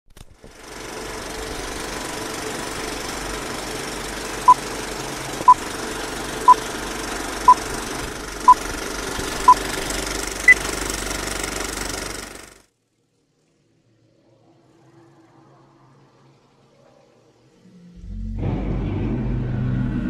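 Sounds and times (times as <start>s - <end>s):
film projector clattering: 0.4s - 12.6s.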